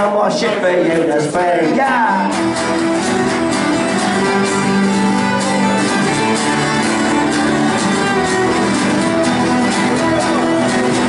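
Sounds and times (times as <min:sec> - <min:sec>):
strummed acoustic guitars: 0:00.0 - 0:11.0
bowed fiddle melody: 0:02.2 - 0:11.0.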